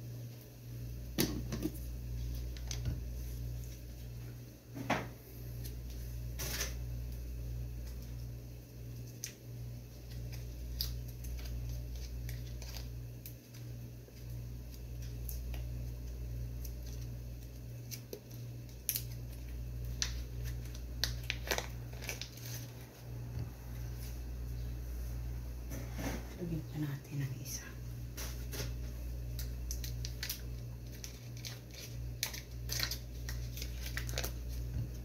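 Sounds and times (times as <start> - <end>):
steady low hum: 0.0 - 35.0
foil crinkling and clicking: 8.9 - 23.1, 28.2 - 35.0.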